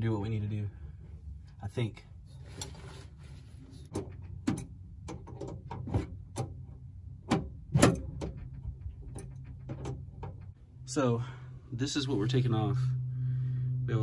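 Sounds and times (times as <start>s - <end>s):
steady low hum: 0.0s - 14.0s
light knocks and clicks of parts: 3.9s - 10.6s.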